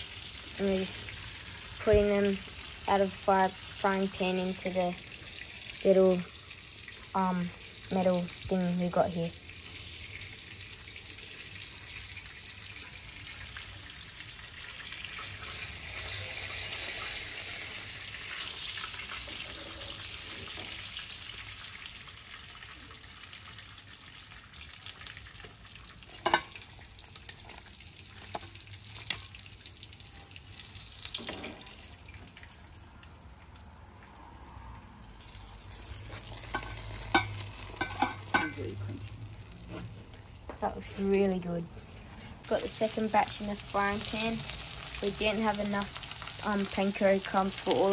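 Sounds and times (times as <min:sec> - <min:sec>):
fish sizzling in hot oil: 0:00.0 - 0:40.4, 0:41.0 - 0:47.9
tongs clicking against pan: 0:26.2 - 0:27.4, 0:36.5 - 0:38.7.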